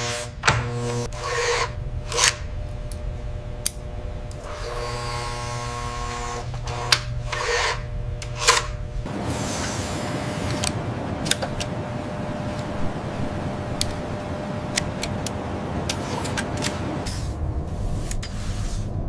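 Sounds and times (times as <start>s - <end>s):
tools scraping and ratcheting: 0.0s - 3.0s, 6.2s - 8.8s
electric motor hum: 0.0s - 18.2s.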